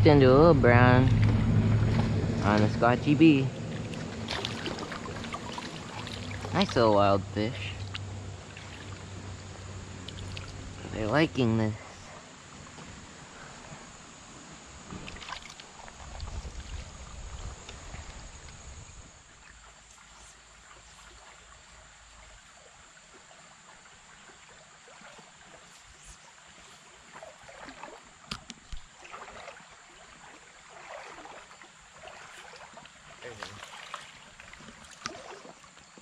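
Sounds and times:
low rumble: 0.0s - 11.4s
creek water trickling over stones: 1.0s - 36.0s.

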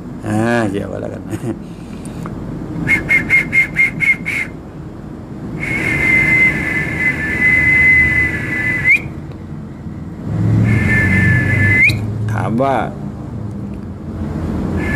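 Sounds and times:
low steady hum: 0.0s - 14.9s
high-pitched whistling: 2.8s - 4.6s, 5.6s - 9.2s, 10.6s - 12.2s.

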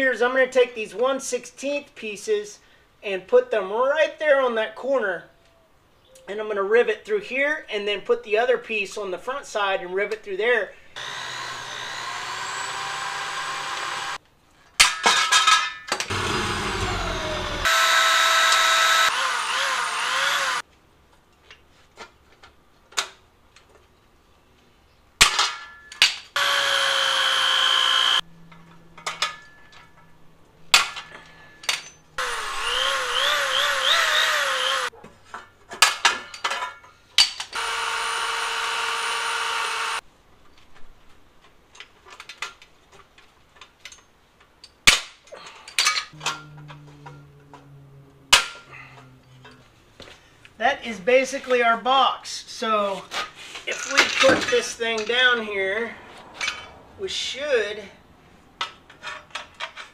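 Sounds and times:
electric drill whining: 11.0s - 14.2s, 16.1s - 20.6s, 26.4s - 28.2s, 32.2s - 34.9s, 37.6s - 40.0s.

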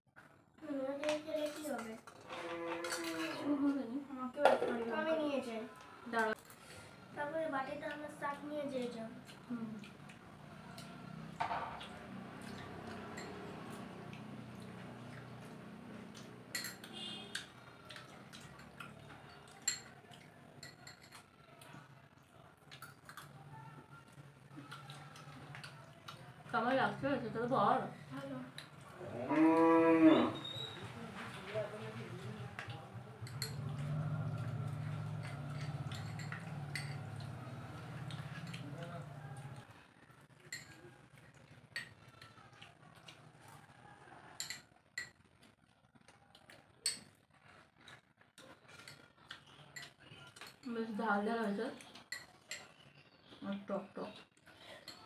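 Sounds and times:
spoons scraping small bowls: 1.4s - 3.6s, 16.5s - 21.4s, 33.2s - 38.8s.

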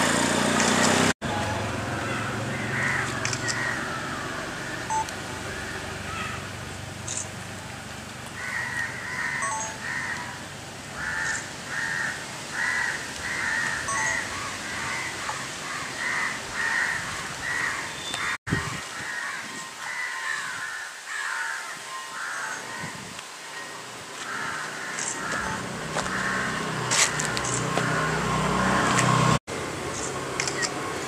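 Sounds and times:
crows cawing: 2.0s - 4.8s, 8.4s - 10.4s, 11.0s - 23.0s, 24.2s - 29.0s.

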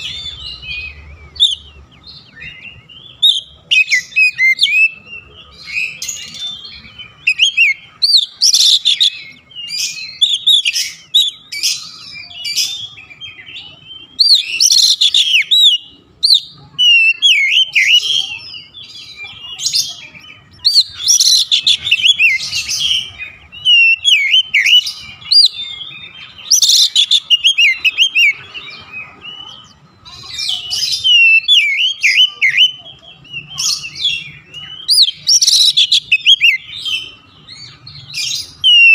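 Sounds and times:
bird singing whistles and chirps: 0.0s - 38.9s.

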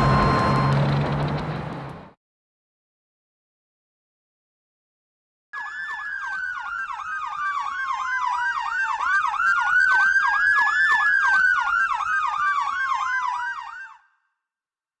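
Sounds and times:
electronic siren yelping: 5.6s - 14.1s.

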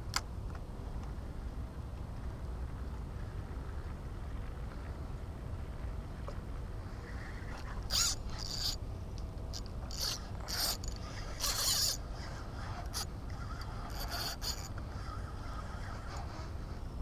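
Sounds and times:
fishing reel gears whirring: 7.0s - 8.8s, 9.5s - 16.8s.

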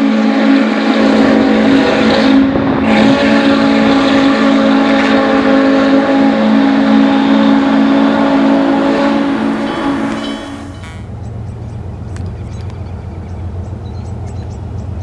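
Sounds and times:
steam locomotive whistle: 0.0s - 11.1s.

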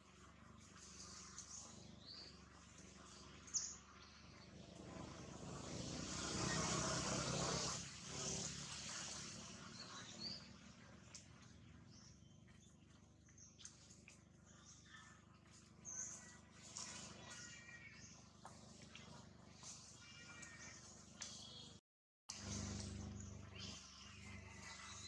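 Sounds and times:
birds chirping: 0.6s - 21.8s, 22.4s - 25.0s
vehicle passing: 4.3s - 10.7s.

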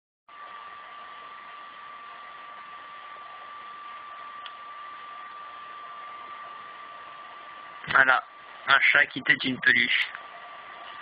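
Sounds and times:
thin steady whine: 0.3s - 11.0s
faint tick: 4.4s - 4.6s.

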